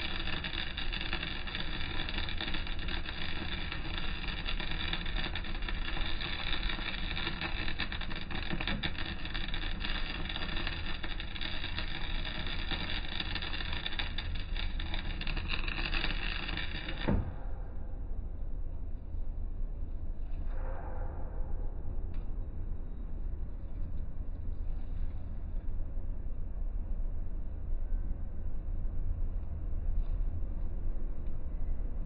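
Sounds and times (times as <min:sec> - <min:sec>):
welding arc crackling and hissing: 0:00.0 - 0:17.4
constant low rumble: 0:00.0 - 0:32.0.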